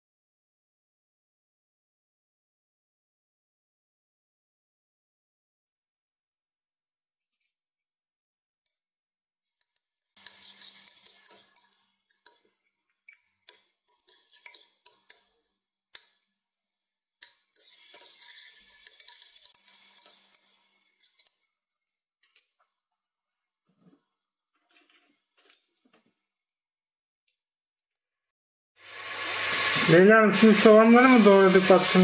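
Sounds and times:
onion sizzling in oil: 10.2s - 12.4s, 17.2s - 21.3s, 28.8s - 32.0s
metal spoon scraping pot: 10.2s - 16.2s, 17.2s - 21.4s.

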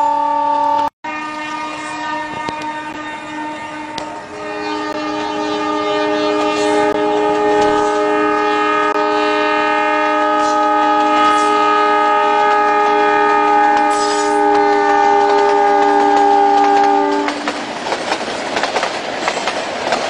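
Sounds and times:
diesel train horn blast: 0.0s - 17.6s.

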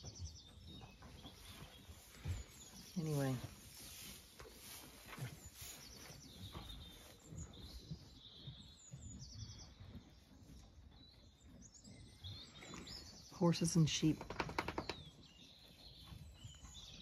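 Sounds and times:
faint birdsong trills: 0.0s - 17.0s
soft low rustles: 1.0s - 8.7s.

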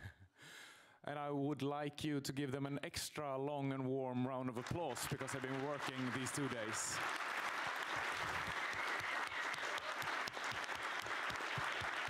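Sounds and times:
audience applauding: 4.6s - 12.0s.

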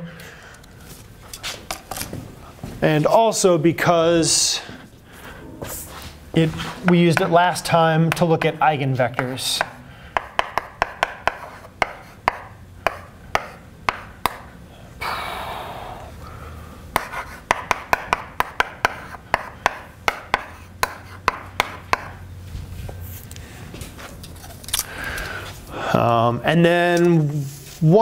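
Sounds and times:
chalk tapping on blackboard: 9.2s - 14.4s, 17.0s - 22.2s
chalk rasping on blackboard: 10.6s - 13.6s, 17.0s - 17.8s, 20.3s - 21.4s.

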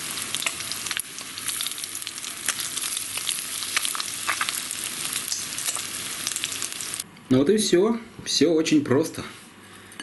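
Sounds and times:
fish frying in a pan: 0.0s - 7.0s
sharp crackles and pops: 0.0s - 7.0s.

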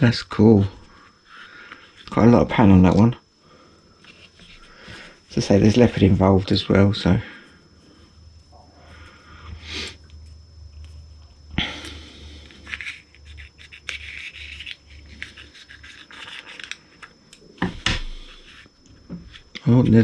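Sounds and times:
steady low hum: 0.0s - 20.0s
hands rubbing and scratching: 12.6s - 17.1s.

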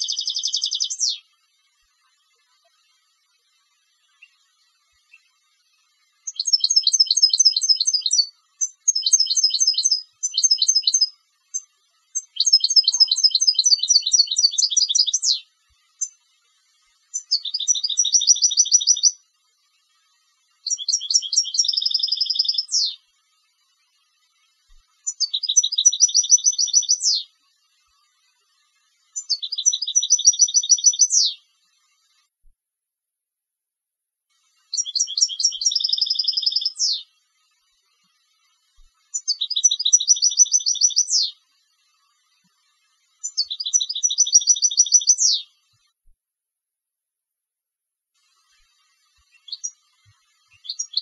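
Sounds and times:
goldfinch singing trilled phrases: 0.0s - 1.3s, 6.2s - 16.2s, 17.1s - 19.2s, 20.6s - 23.0s, 25.0s - 27.3s, 29.2s - 31.4s, 34.7s - 37.1s, 39.1s - 41.4s, 43.2s - 45.6s, 49.3s - 49.8s, 50.5s - 51.0s.

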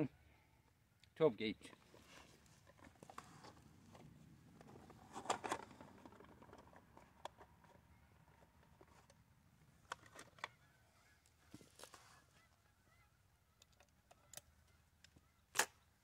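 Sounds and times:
shotgun handling clicks: 13.6s - 15.9s.

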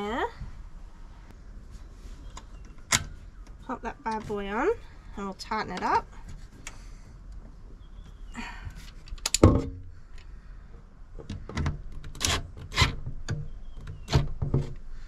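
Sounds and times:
metal clicks and scraping: 8.8s - 10.3s, 11.2s - 14.8s.

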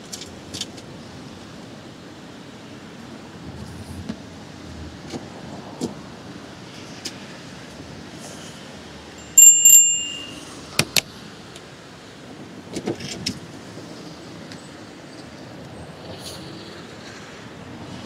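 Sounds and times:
street noise: 0.0s - 18.0s
bicycle bell ringing: 9.2s - 10.7s.

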